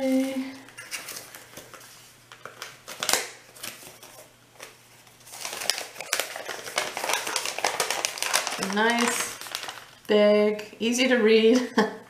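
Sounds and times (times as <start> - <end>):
packaging crinkling and rustling: 0.0 - 10.6.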